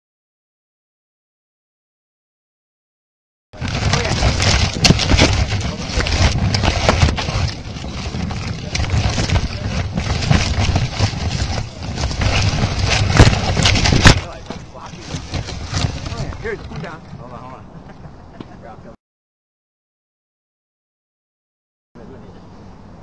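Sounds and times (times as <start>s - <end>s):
branches rustling and scraping: 3.6s - 17.6s
wind buffeting on microphone: 3.6s - 18.8s.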